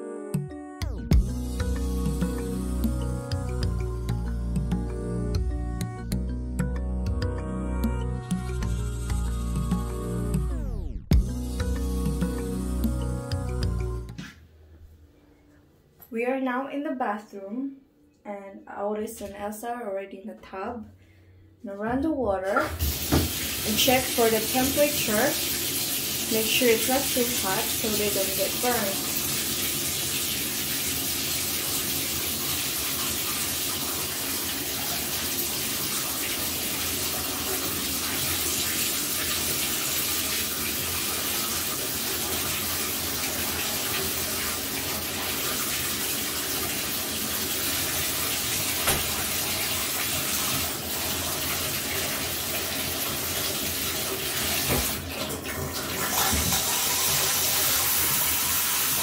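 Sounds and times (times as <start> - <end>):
water running into bathtub: 22.4 - 59.0.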